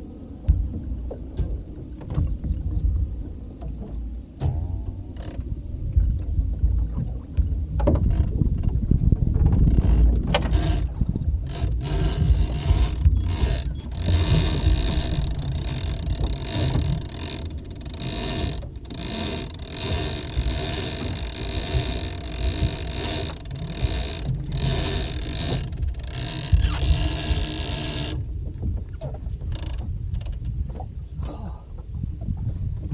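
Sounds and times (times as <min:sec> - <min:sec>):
wind rumble on microphone: 0:00.0 - 0:32.9
fishing reel drag buzzing: 0:11.4 - 0:28.2.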